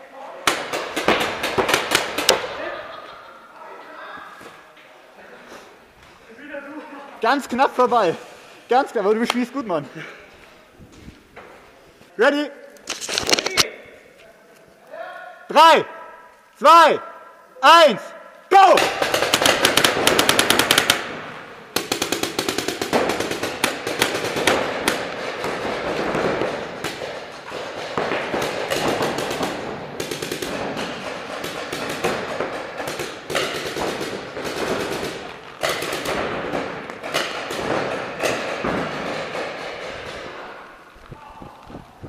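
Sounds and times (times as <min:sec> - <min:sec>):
paintball markers firing: 0:00.4 - 0:02.6, 0:18.8 - 0:40.8.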